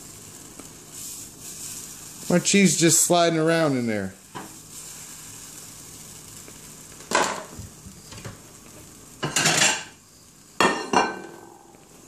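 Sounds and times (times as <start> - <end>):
egg sizzling in a frying pan: 0.0 - 12.0.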